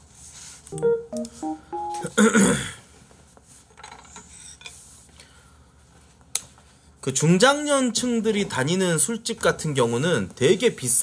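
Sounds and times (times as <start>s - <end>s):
piano phrase: 0.8s - 2.3s.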